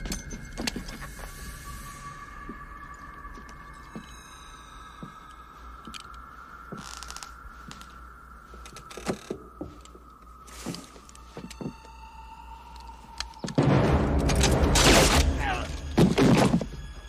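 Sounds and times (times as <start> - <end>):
hissing swells: 1.0 - 11.3.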